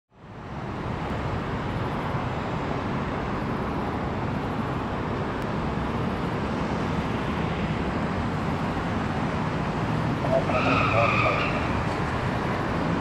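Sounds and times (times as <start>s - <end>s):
distant jet engines rumbling: 3.4s - 13.0s.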